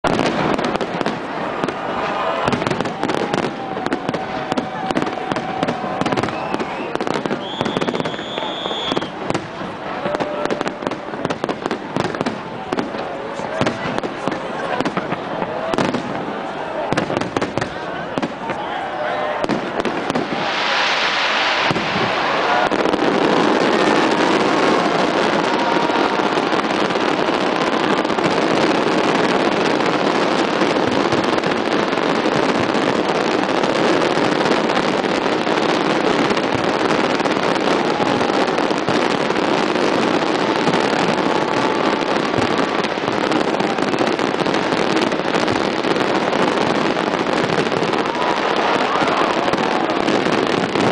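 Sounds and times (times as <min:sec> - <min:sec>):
fireworks crackling and banging: 0:00.0 - 0:50.9
fireworks hissing burst: 0:19.4 - 0:50.9.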